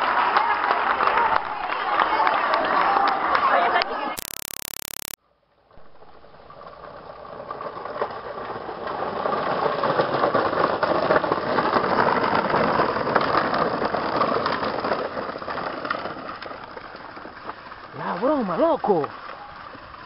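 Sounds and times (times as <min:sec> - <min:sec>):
plastic wheels crunching on dirt: 0:06.0 - 0:20.0.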